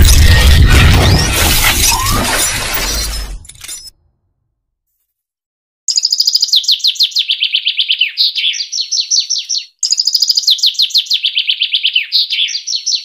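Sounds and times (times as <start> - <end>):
songbird chirping: 5.9 - 13.0.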